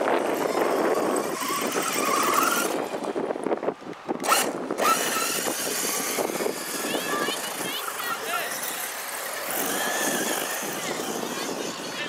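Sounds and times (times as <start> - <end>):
electric motor whine: 0.0 - 3.2, 4.2 - 12.0.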